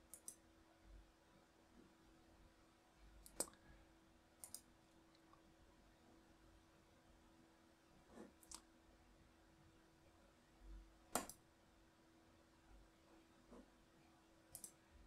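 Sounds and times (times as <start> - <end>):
computer mouse clicks: 0.1 - 0.4, 3.2 - 3.6, 4.4 - 5.3, 8.2 - 8.7, 11.1 - 11.4, 14.5 - 14.8.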